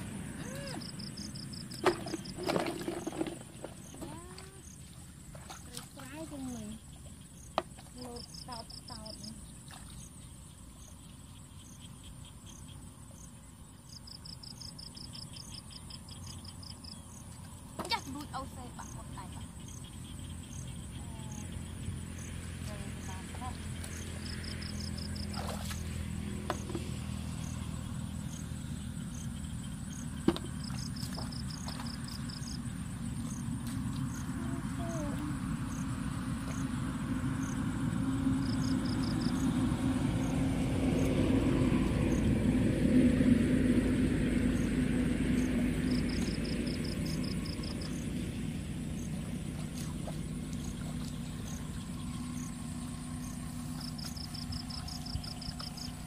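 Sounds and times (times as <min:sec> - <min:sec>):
insects chirping trills: 0:00.0 - 0:56.0
truck engine droning: 0:32.3 - 0:56.0.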